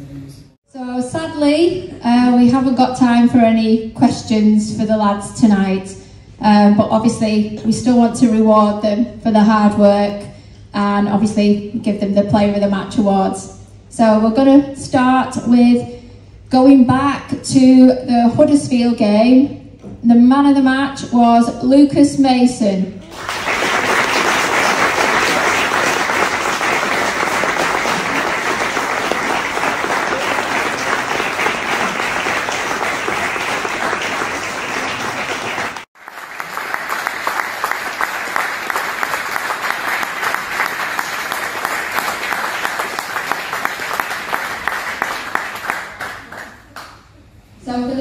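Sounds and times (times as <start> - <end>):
crowd applauding: 23.0 - 47.0.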